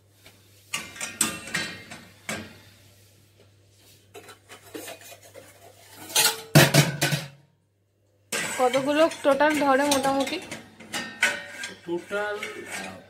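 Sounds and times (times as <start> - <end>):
steel dishes clanking in dishwasher rack: 0.7 - 2.6, 4.2 - 7.4, 8.3 - 13.0.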